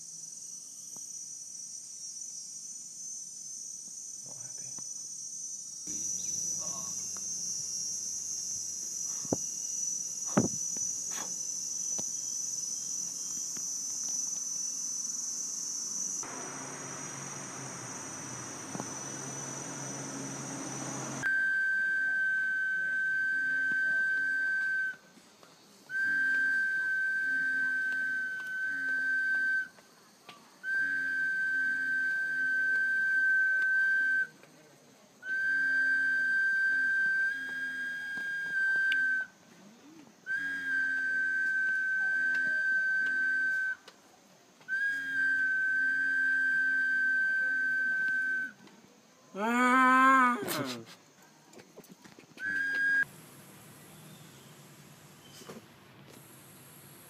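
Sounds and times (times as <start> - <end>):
high-pitched insect drone: 0.0 - 25.0, 25.6 - 34.4, 35.3 - 39.3
whistle held note: 16.2 - 25.0, 25.9 - 29.7, 30.6 - 34.4, 35.3 - 39.3, 40.3 - 43.8, 44.7 - 48.6, 52.4 - 53.1.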